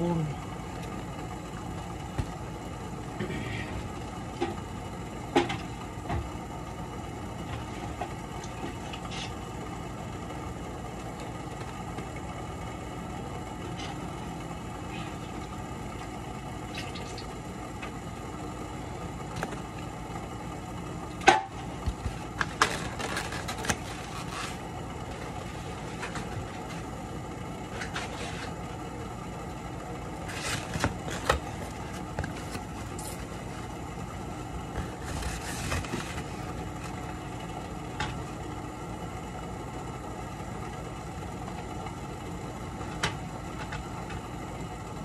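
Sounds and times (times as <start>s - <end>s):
steady background hum: 0.0s - 45.0s
foam containers tapping and rustling: 21.2s - 26.9s, 30.3s - 33.7s, 34.7s - 37.0s.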